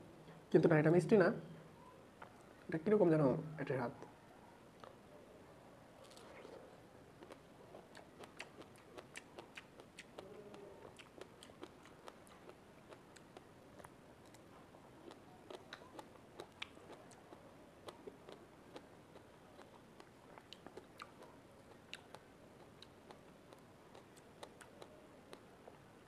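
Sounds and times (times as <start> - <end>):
person chewing strawberry: 4.8 - 5.0, 6.0 - 25.9.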